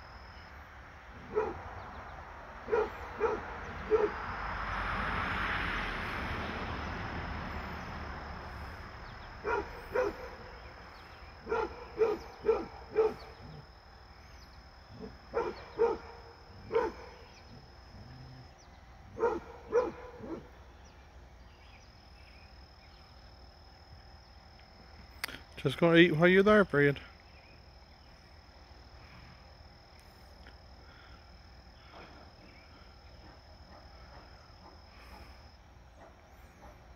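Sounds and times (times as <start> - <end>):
dog barking: 1.3 - 1.6, 2.7 - 4.2, 9.4 - 10.5, 11.4 - 13.3, 15.0 - 17.2, 19.2 - 20.5, 36.0 - 36.9.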